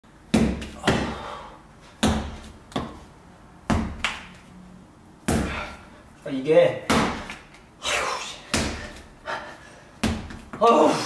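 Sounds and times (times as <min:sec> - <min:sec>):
clay slammed on concrete floor: 0:00.3 - 0:01.3, 0:06.8 - 0:07.6, 0:08.4 - 0:09.1, 0:10.0 - 0:10.7.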